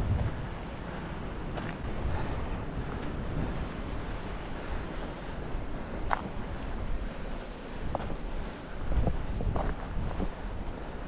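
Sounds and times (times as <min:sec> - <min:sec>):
sea rushing: 0:00.0 - 0:11.0
wind buffeting microphone: 0:00.0 - 0:11.0.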